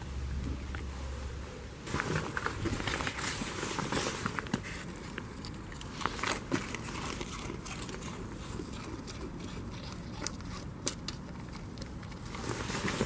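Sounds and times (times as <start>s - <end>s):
steady low rumble: 0.0s - 3.6s
goat kid chewing food: 2.0s - 13.0s.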